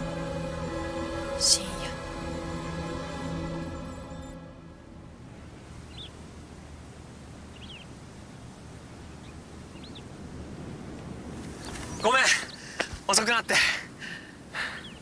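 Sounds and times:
high bird chirps: 5.8 - 6.2, 7.5 - 7.9.

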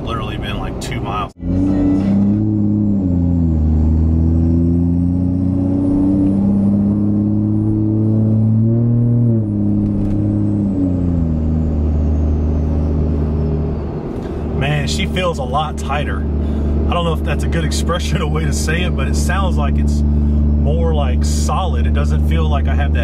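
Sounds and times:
diesel engine pulling: 0.0 - 23.0.

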